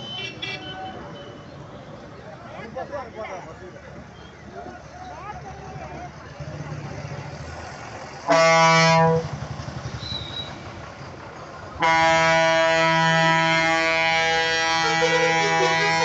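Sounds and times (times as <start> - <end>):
traffic noise: 0.0 - 16.0
bus air horn blasts: 8.2 - 9.4, 11.8 - 16.0.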